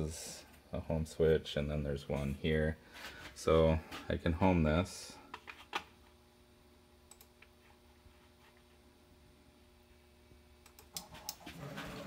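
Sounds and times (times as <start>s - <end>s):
faint steady hum: 0.0s - 12.0s
soft clicks: 7.1s - 7.5s, 10.6s - 11.4s.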